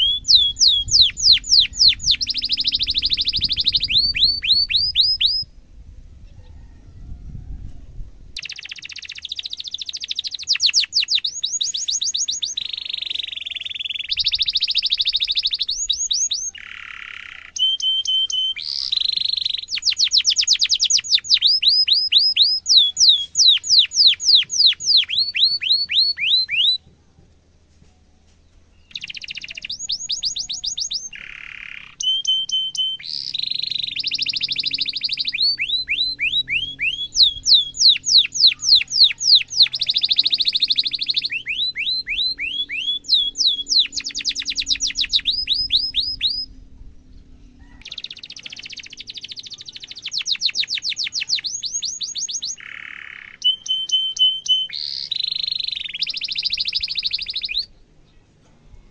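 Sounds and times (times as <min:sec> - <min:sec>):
canary singing trills: 0:00.0 - 0:05.5, 0:08.4 - 0:26.8, 0:28.7 - 0:58.2.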